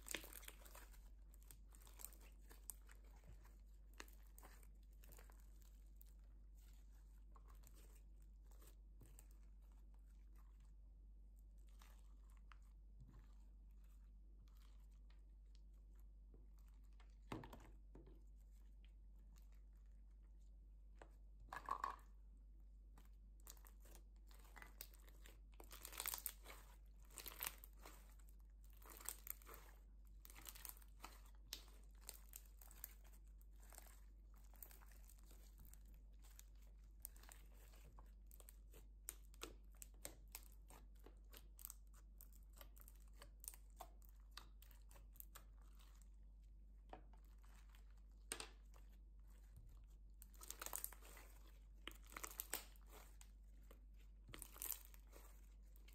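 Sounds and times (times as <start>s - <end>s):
slime popping and crackling: 0.0s - 6.0s, 23.3s - 46.1s, 47.1s - 55.9s.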